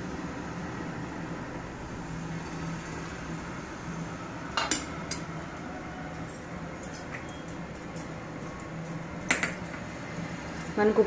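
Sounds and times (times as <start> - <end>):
steady low hum: 0.0 - 11.0
kitchenware clinking: 4.6 - 5.3, 8.8 - 9.8.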